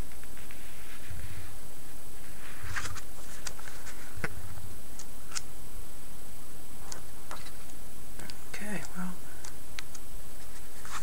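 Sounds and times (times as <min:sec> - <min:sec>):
pages rustling: 0:02.2 - 0:05.5, 0:10.3 - 0:11.0.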